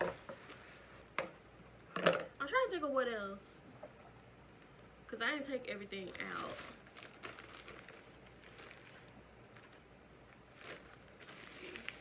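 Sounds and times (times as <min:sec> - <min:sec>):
plastic bag crinkling: 0:06.0 - 0:12.0.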